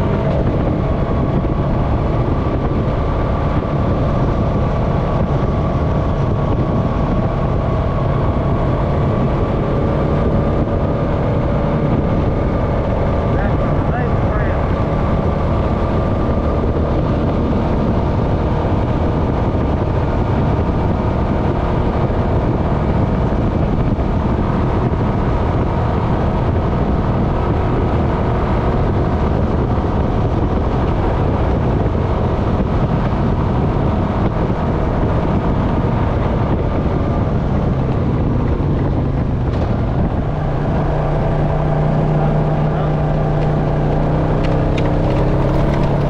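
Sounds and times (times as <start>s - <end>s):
atv engine running: 0.0s - 46.0s
tyre and wind noise: 0.0s - 46.0s.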